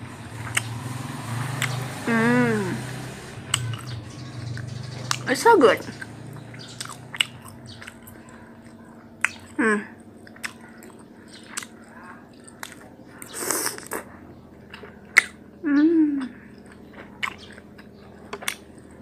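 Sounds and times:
person chewing food: 0.4 - 0.7, 3.5 - 5.3, 5.9 - 15.6, 16.2 - 19.0
mouth clicks and smacks: 5.9 - 14.1, 14.7 - 15.4.

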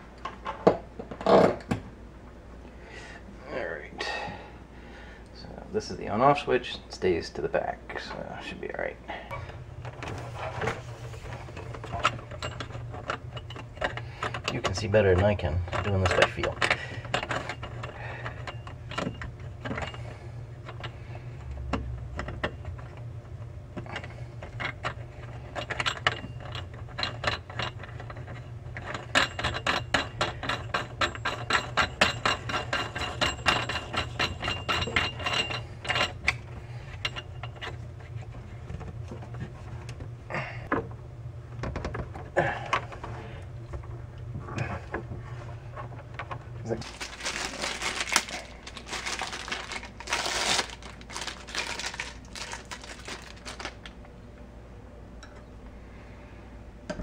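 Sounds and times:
steady low hum: 0.0 - 57.0
fittings clicking and rattling: 11.5 - 20.9.

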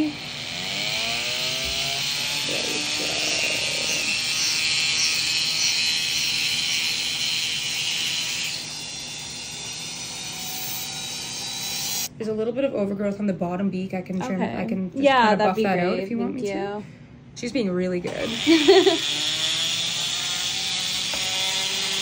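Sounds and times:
rotary tool grinding whine: 0.0 - 12.1, 18.1 - 22.0.

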